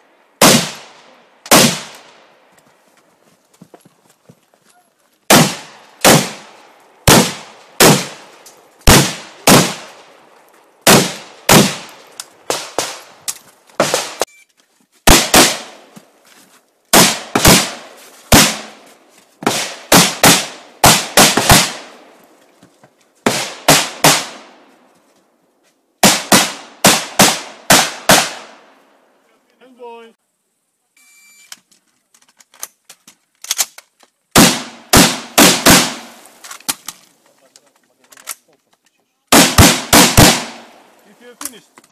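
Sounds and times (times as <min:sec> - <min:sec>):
rifle shots echoing: 0:00.4 - 0:02.3, 0:05.3 - 0:10.2, 0:10.8 - 0:13.2, 0:13.8 - 0:14.3, 0:15.1 - 0:15.9, 0:16.9 - 0:18.8, 0:19.4 - 0:22.1, 0:23.3 - 0:24.6, 0:26.0 - 0:28.7, 0:34.4 - 0:36.3, 0:39.3 - 0:40.9.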